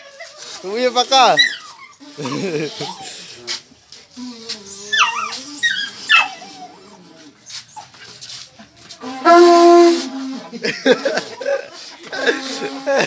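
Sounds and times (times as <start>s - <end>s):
dog whining: 1.2s - 3.3s, 4.2s - 7.0s
pipe horn blowing: 9.0s - 10.4s.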